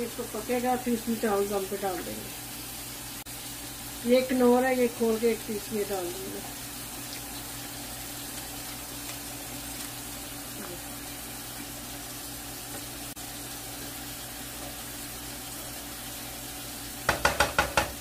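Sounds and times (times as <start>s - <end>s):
spatula knocking against pot: 17.0s - 18.0s.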